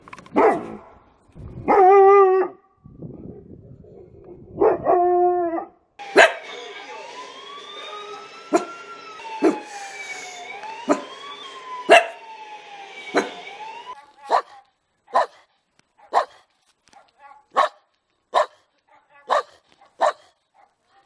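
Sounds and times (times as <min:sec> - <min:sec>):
small dog barking: 0:00.4 - 0:00.9, 0:06.1 - 0:06.5, 0:11.9 - 0:12.2, 0:14.0 - 0:21.0
dog barking: 0:00.4 - 0:01.0, 0:06.1 - 0:06.5, 0:08.5 - 0:08.8, 0:10.9 - 0:11.1, 0:11.9 - 0:12.2, 0:14.0 - 0:21.0
siren wailing: 0:06.0 - 0:14.1.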